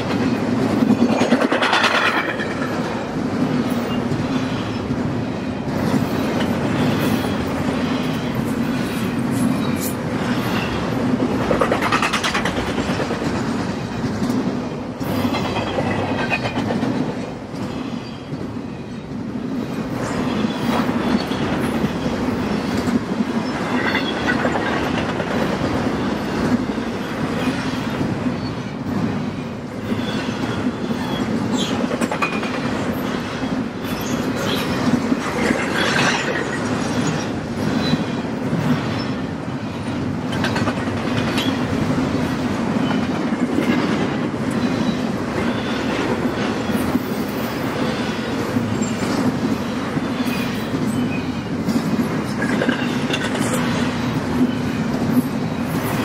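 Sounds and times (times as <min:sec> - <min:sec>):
wheels clicking over rail joints: 0:00.0 - 0:03.1, 0:05.7 - 0:17.8, 0:29.9 - 0:38.8, 0:39.9 - 0:47.6.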